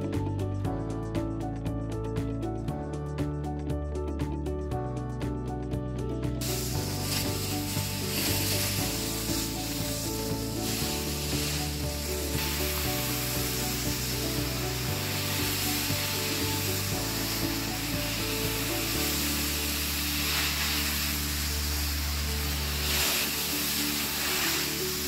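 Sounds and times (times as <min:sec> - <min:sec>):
background music: 0:00.0 - 0:25.0
carpet extractor hissing: 0:06.4 - 0:25.0.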